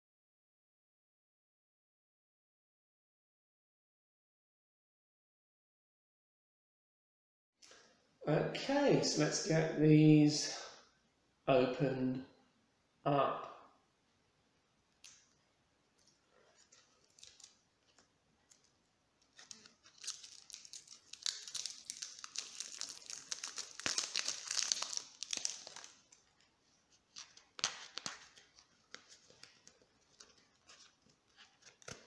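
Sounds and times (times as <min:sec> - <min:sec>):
cellophane crinkling: 0:16.0 - 0:32.0.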